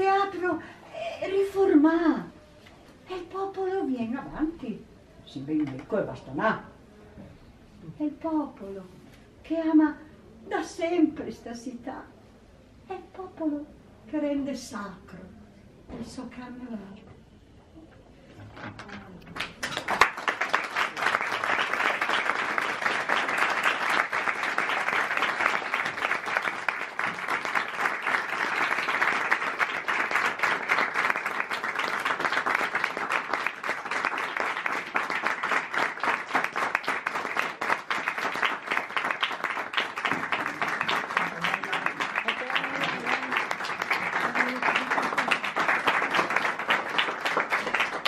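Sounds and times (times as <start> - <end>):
audience applauding: 19.4 - 48.0.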